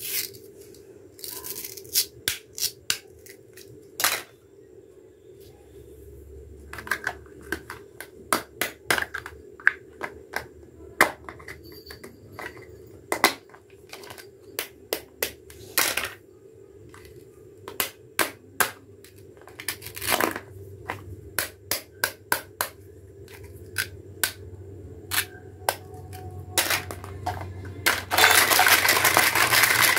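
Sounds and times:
low steady hum: 0.0s - 29.9s
plastic toy pieces clicking and knocking: 6.7s - 16.2s, 25.1s - 29.9s.

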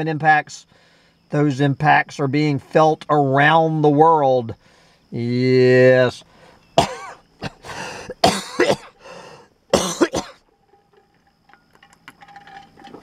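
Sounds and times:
man coughing: 6.8s - 9.0s, 9.7s - 10.4s.

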